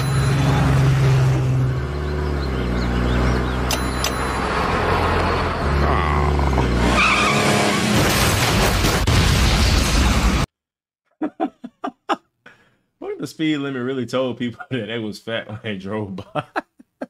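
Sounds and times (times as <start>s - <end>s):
cartoon car engine running: 0.0s - 7.7s
tyre squeal: 5.8s - 7.8s
car crash and explosion: 7.7s - 10.5s.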